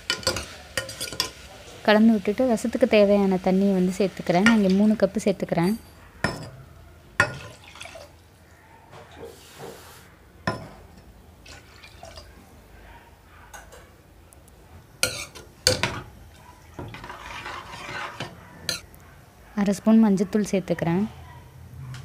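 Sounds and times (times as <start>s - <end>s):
water pouring into pot: 7.2s - 8.2s, 11.4s - 12.3s.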